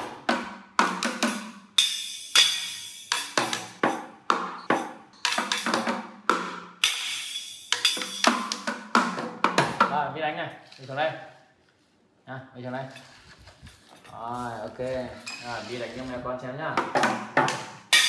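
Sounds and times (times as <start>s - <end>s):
toy drums struck with sticks: 0.0s - 9.9s, 16.8s - 18.0s
cymbal hits ringing: 1.8s - 3.4s, 6.8s - 8.6s.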